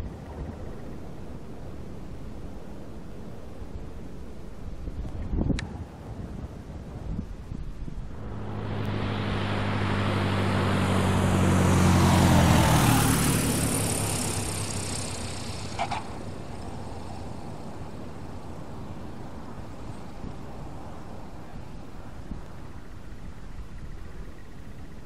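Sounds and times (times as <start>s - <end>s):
light plane passing by: 5.6s - 25.0s.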